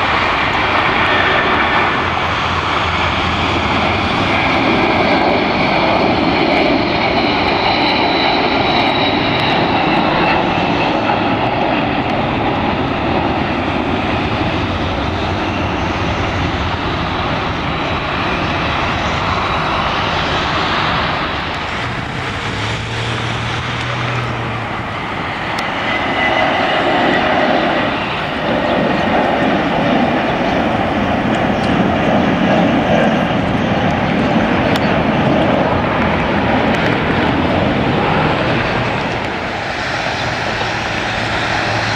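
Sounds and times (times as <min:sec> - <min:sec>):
jet engines at takeoff: 0:00.0 - 0:41.9.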